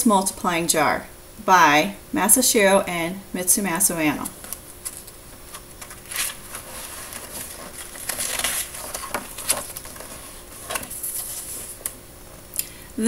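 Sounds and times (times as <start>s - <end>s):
book pages turning: 4.3s - 12.0s.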